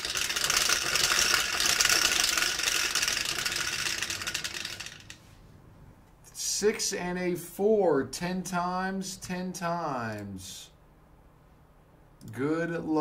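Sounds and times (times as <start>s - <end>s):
dice rattling in plastic shaker: 0.0s - 5.2s.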